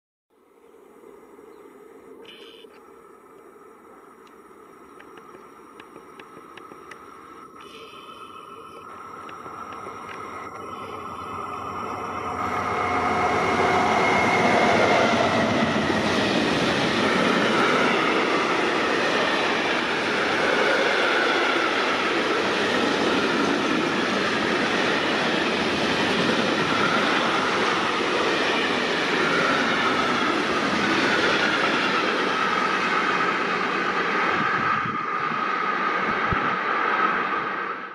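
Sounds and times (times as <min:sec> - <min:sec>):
freight train rumbling past: 0:08.2 - 0:37.9.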